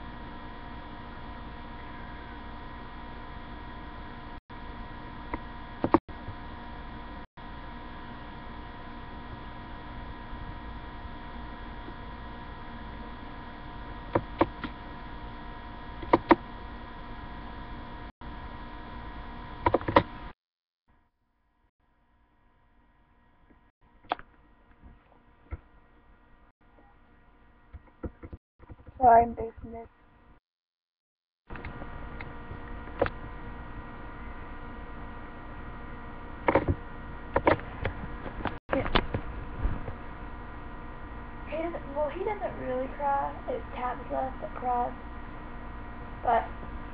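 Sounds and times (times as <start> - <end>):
electrical hum and hiss: 0.0 - 20.3, 31.5 - 46.9
thin multi-tone whine: 0.0 - 20.4
sharp clicks: 5.3 - 6.0, 16.0 - 16.4, 19.6 - 20.1
clicks: 16.0 - 16.4.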